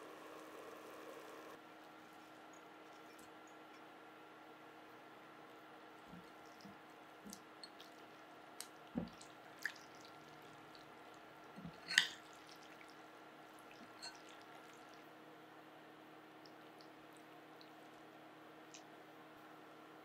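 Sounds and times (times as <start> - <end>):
wet noodles squishing and dripping: 1.9 - 3.9, 6.0 - 15.2, 16.3 - 19.0.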